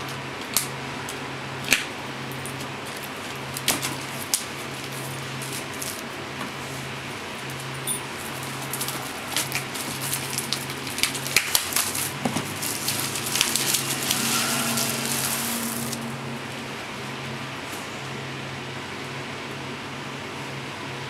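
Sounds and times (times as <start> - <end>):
plastic wrap crackling: 8.3 - 16.2.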